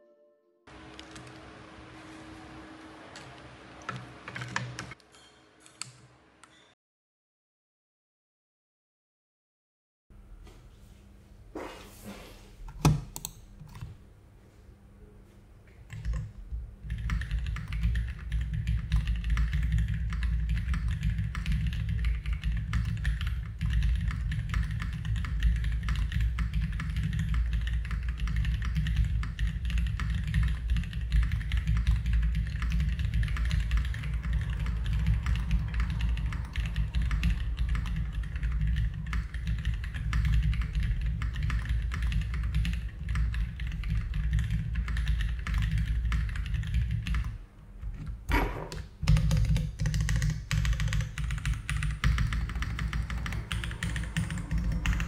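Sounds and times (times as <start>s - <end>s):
fast typing on mechanical keyboard: 3.9s - 5.0s, 15.9s - 47.4s, 49.0s - 55.0s.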